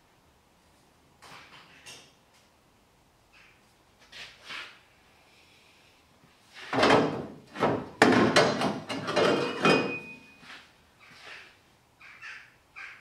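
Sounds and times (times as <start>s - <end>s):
exhaust pipes scraping and clanking: 7.4s - 10.1s
brief metallic ring: 9.8s - 10.4s.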